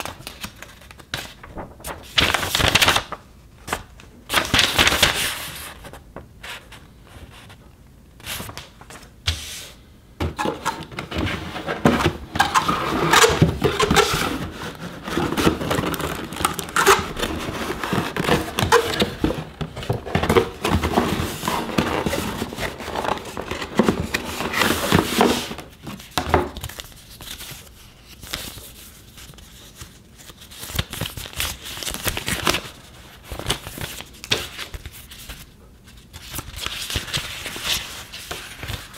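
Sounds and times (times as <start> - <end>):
paper and plastic bag crinkling: 0.0 - 6.6, 11.0 - 27.6.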